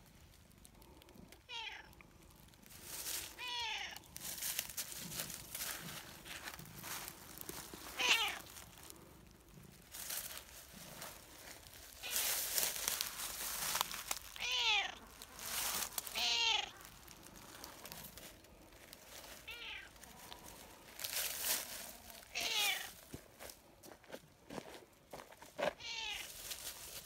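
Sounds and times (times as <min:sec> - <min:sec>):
rustling: 0:00.0 - 0:27.0
cat meowing: 0:01.4 - 0:02.0, 0:03.3 - 0:04.1, 0:08.0 - 0:08.5, 0:14.3 - 0:15.1, 0:16.0 - 0:17.0, 0:19.4 - 0:20.0, 0:22.3 - 0:23.0, 0:25.8 - 0:26.3.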